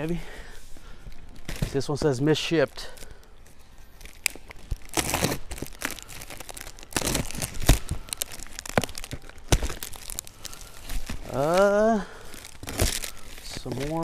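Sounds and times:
packaging crinkling: 1.1s - 14.0s
cardboard box ripping: 4.8s - 10.2s.

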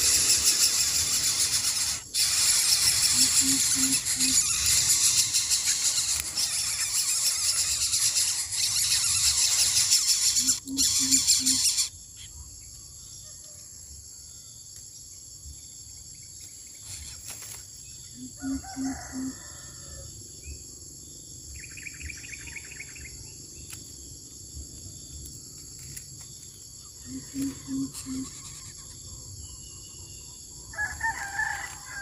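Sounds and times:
chicks begging squeals: 0.0s - 11.9s
insects droning: 0.0s - 32.0s.

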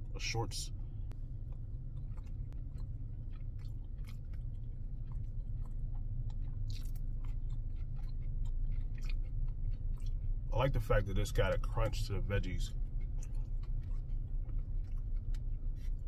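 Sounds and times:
chewing crunchy food: 1.1s - 16.0s.

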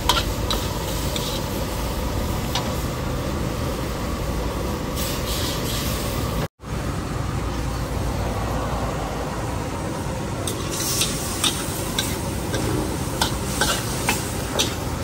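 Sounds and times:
metal spatula scraping wok: 0.0s - 1.8s, 10.4s - 15.0s
stir-frying rushing noise: 0.0s - 6.5s, 10.2s - 15.0s.

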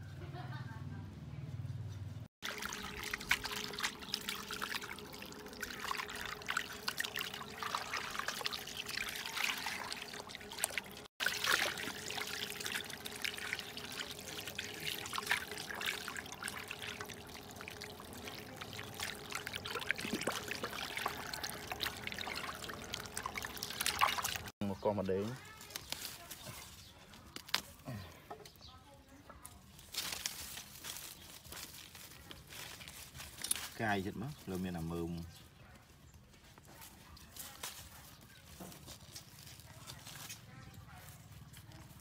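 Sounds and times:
water splashing in steel bowl: 2.4s - 24.6s.

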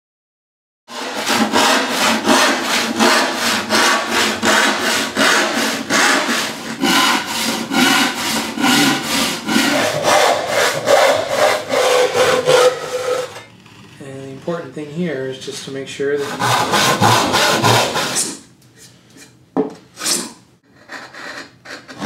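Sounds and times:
handsaw cutting a board: 0.9s - 13.4s, 16.2s - 18.4s, 20.0s - 22.0s.

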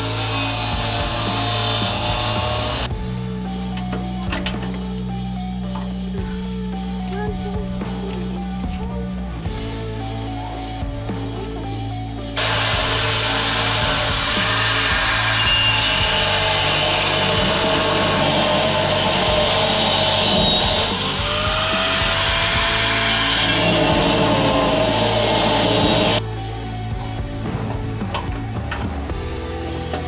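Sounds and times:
angle grinder cutting steel: 0.0s - 2.9s, 12.4s - 26.2s.

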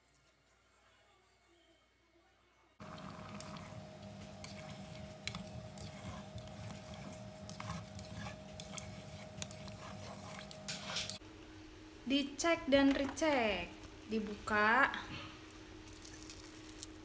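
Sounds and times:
paddle scraping rice pot: 2.8s - 11.2s
steady hum: 2.8s - 16.0s
liquid squishing: 15.8s - 17.0s.

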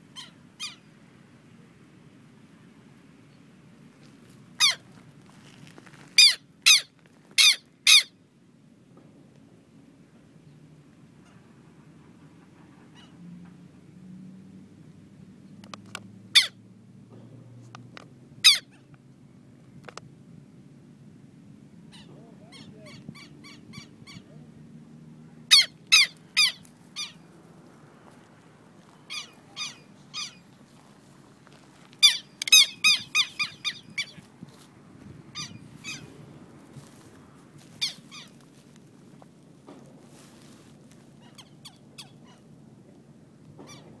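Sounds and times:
lapwings calling in alarm: 0.1s - 0.9s, 4.6s - 4.9s, 6.2s - 8.2s, 21.9s - 24.3s, 25.5s - 27.3s, 28.9s - 30.5s, 32.0s - 34.3s, 35.3s - 36.2s, 37.7s - 38.4s.

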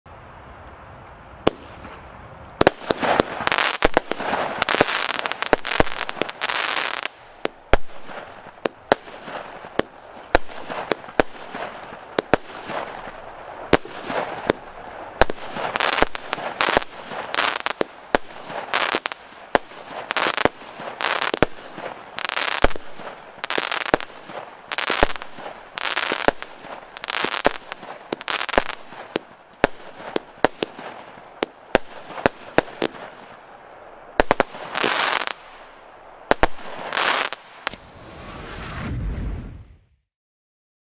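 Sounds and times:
crackle of fireworks bursts: 0.6s - 40.0s
fireworks cake firing reports: 1.5s - 33.5s.

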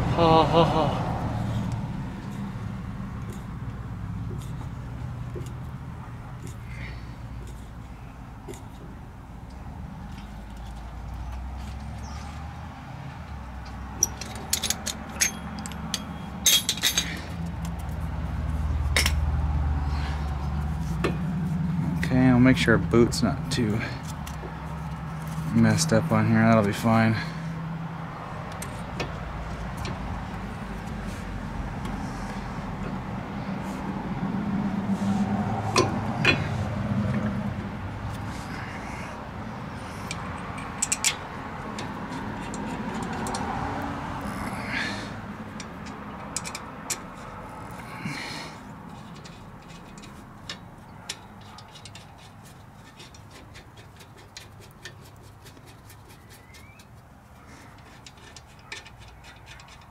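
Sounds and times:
metal tools clinking: 13.6s - 17.9s, 18.9s - 19.3s, 39.8s - 43.6s.

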